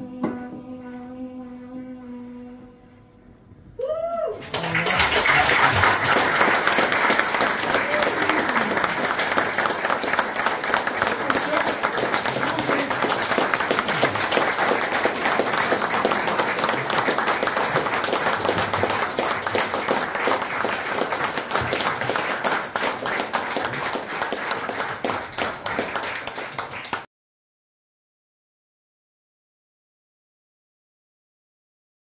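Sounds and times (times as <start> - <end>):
audience applauding: 4.4 - 27.1.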